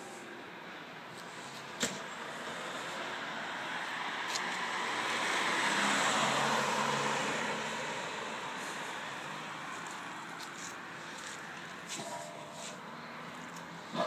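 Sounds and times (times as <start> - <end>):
motor vehicle passing by: 2.4 - 11.4.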